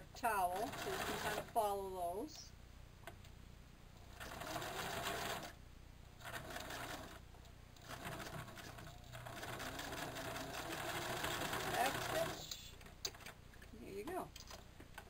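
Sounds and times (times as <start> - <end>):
sewing machine stitching: 0.5 - 1.6, 4.1 - 5.6, 6.2 - 7.2, 7.8 - 13.3.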